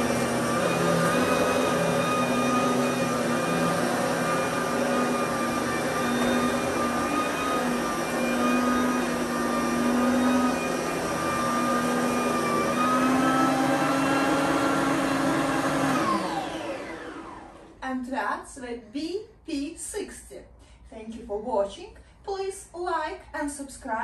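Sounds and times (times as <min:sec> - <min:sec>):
vacuum cleaner motor whine: 0:00.0 - 0:17.8.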